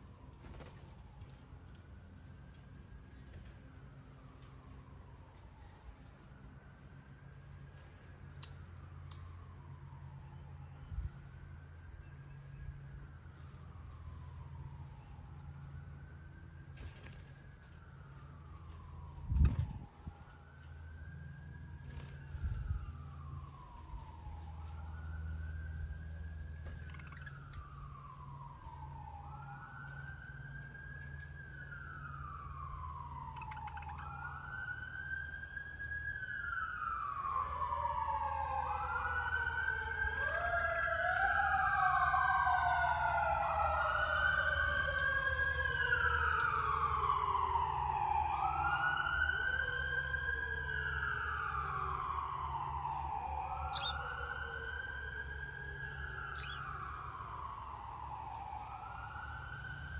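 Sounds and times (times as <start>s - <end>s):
sirens wailing: 0.0s - 59.9s.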